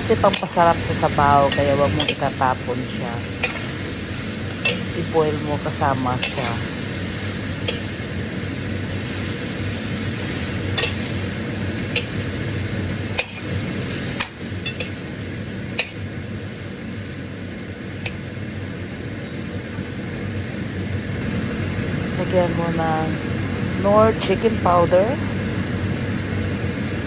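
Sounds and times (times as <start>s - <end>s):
food sizzling in pot: 0.0s - 22.2s
metal spoon clinking against pot: 1.5s - 2.3s, 4.6s - 5.0s, 10.8s - 11.0s, 13.2s - 13.4s, 14.2s - 15.0s.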